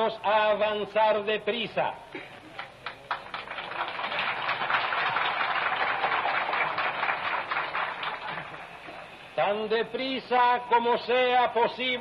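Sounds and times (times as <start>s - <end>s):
crowd applauding: 2.5s - 9.1s.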